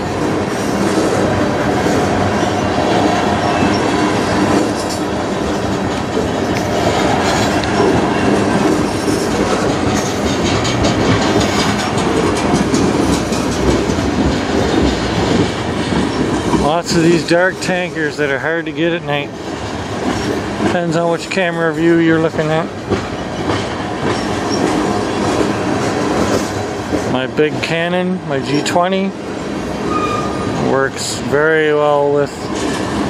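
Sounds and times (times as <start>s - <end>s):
steel wheels rumbling on rail: 0.0s - 33.0s
clicking and clattering couplings: 8.6s - 16.6s.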